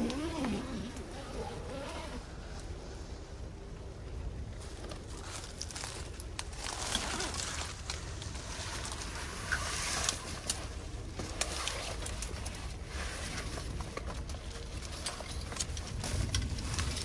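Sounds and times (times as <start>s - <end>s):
nylon fabric rustling: 4.6s - 17.0s.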